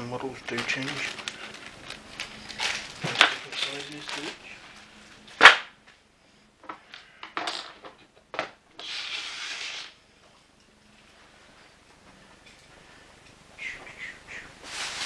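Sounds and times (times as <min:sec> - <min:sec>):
rustling: 0:00.0 - 0:05.5, 0:13.8 - 0:15.0.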